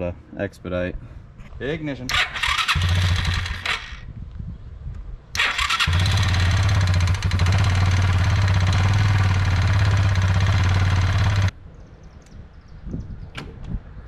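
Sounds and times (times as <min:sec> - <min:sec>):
electric starter cranking: 0:02.1 - 0:04.0, 0:05.4 - 0:11.5
engine running: 0:05.4 - 0:11.5.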